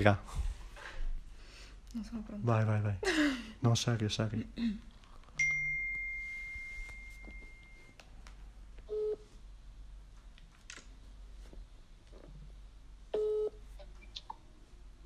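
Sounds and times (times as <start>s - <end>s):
high steady tone: 5.4s - 8.0s.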